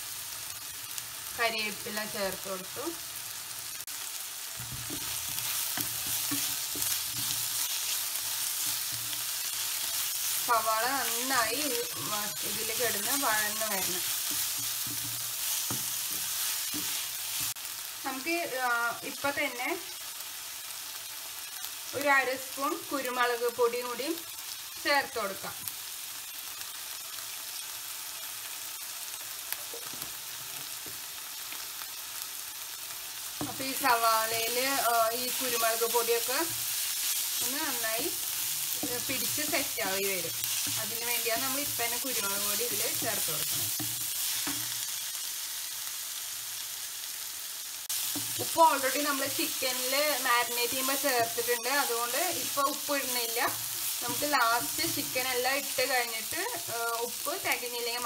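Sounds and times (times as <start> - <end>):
onions sizzling in oil: 0.0 - 58.0.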